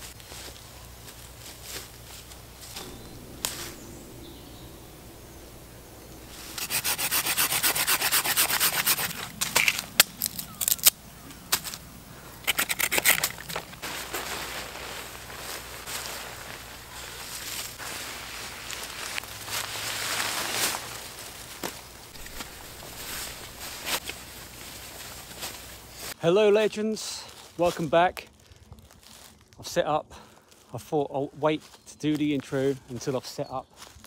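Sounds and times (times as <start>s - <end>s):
rustling in dry leaves: 0.0s - 34.0s
rasping strokes on wooden stick: 6.3s - 9.3s.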